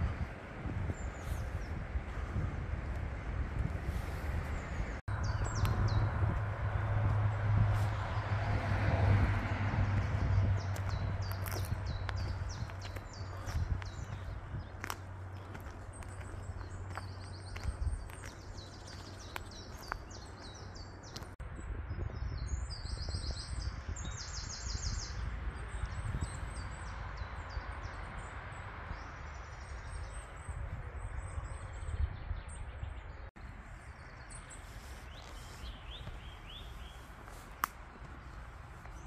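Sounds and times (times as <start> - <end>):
steady low rumble: 0.0 - 24.1
songbirds chirping and trilling: 0.0 - 39.0.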